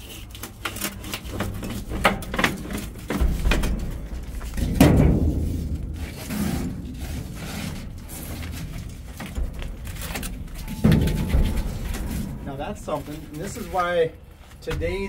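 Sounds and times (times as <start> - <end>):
sheet metal scraping and rattling: 0.0 - 14.9
loud metallic clank: 10.6 - 12.7.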